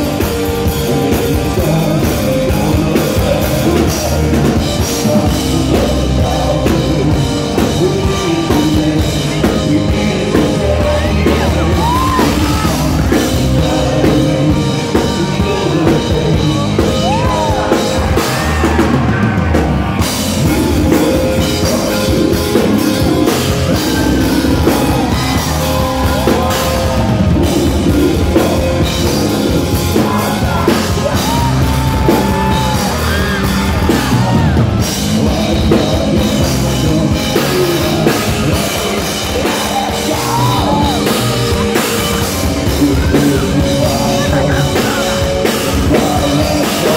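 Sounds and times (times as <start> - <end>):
drums: 0.0 - 46.9
live rock band: 0.0 - 46.9
man singing: 0.0 - 46.9.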